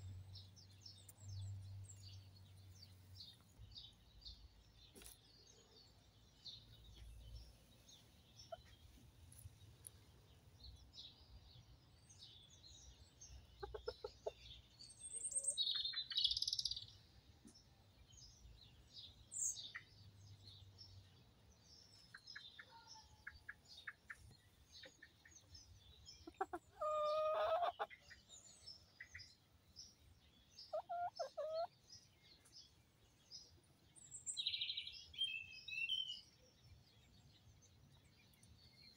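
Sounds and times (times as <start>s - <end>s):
small birds chirping: 0.0s - 38.9s
chickens clucking: 13.5s - 14.6s, 26.2s - 28.3s, 30.6s - 31.8s.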